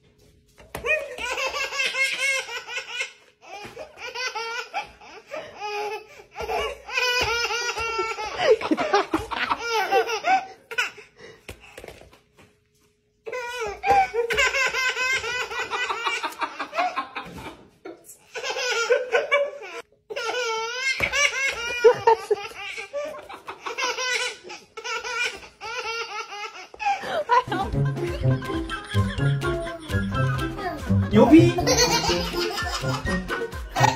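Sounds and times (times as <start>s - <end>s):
baby laughing: 0.8s - 11.0s, 13.4s - 33.9s
man laughing: 27.0s - 33.9s.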